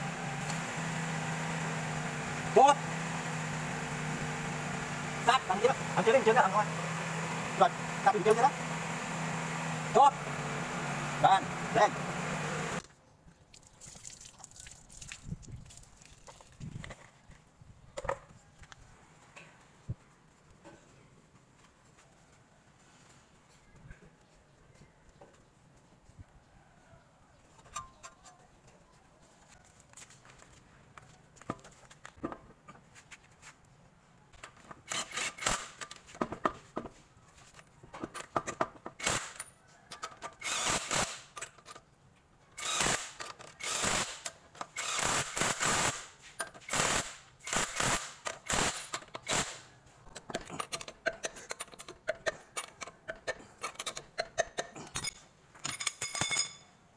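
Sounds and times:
metal clicks and clinks: 50.1 - 56.8.

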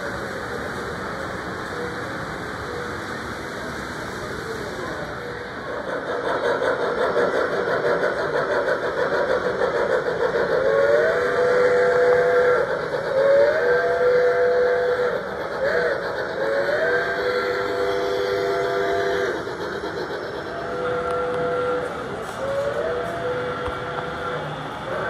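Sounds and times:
rumble of running train: 0.0 - 25.0
model steam locomotive whistle: 4.8 - 25.0.

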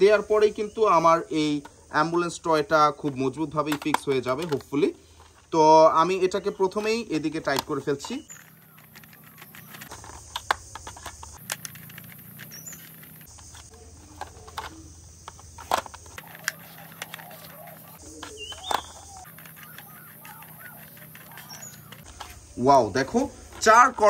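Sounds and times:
faint bird chirps: 7.8 - 9.9, 12.2 - 15.0, 16.2 - 22.7.

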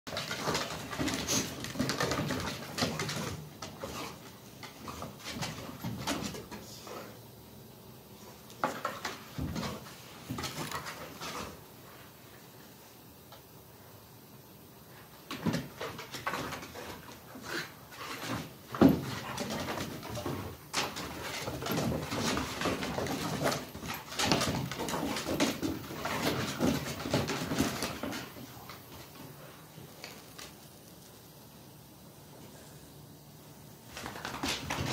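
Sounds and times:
paws and claws on wooden deck: 0.1 - 6.6, 15.3 - 30.6
dogs scuffling: 0.1 - 7.0, 8.5 - 11.7, 15.3 - 31.0, 33.8 - 34.9.

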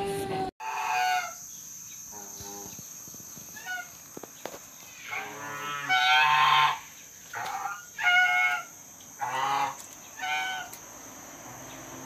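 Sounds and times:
geese honking: 0.6 - 1.4, 3.6 - 4.0, 4.9 - 10.8.

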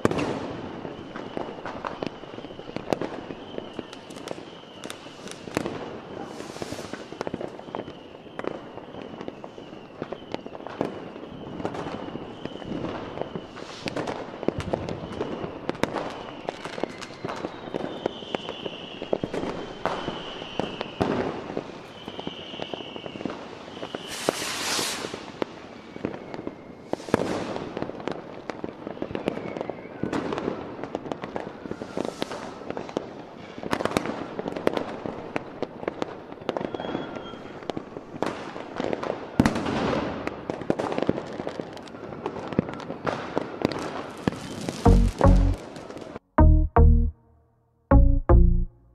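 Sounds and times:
fireworks whistling: 0.0 - 27.9, 28.7 - 33.8, 36.4 - 37.8, 43.8 - 46.1
fireworks bangs and crackles: 0.0 - 46.2
fireworks hiss: 4.2 - 5.6, 6.2 - 7.4, 13.0 - 14.4, 23.5 - 25.9, 26.8 - 27.8, 31.7 - 33.0.

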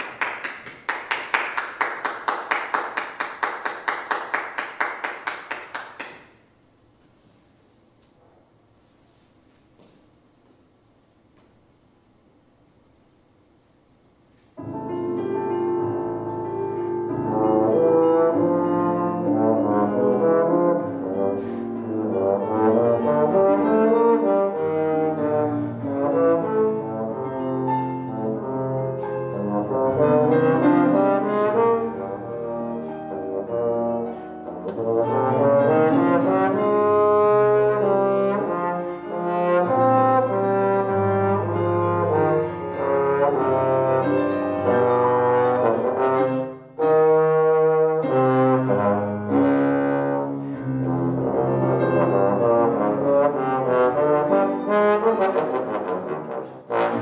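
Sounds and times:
bass trombone solo: 17.2 - 57.0.

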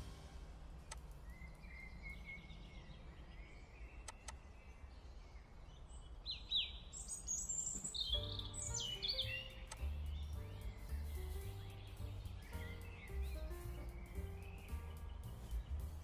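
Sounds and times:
birds chirping: 0.0 - 16.0
low steady rumble: 9.4 - 16.0.

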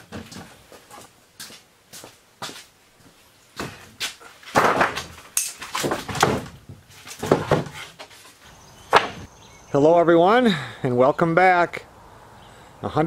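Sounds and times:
wooden boards knocking: 4.5 - 8.0, 8.9 - 9.3.

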